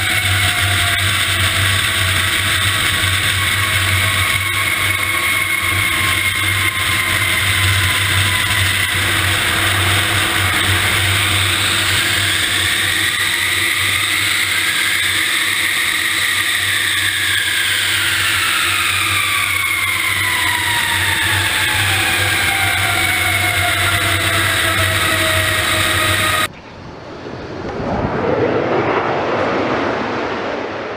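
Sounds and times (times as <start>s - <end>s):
jet engine whine: 0.0s - 30.9s
low hum: 0.0s - 30.9s
tyre and wind rush: 26.5s - 30.9s.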